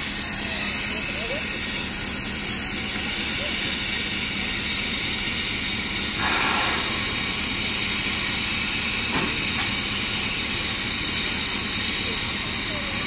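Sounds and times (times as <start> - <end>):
steam hissing from boiler: 0.0 - 13.0.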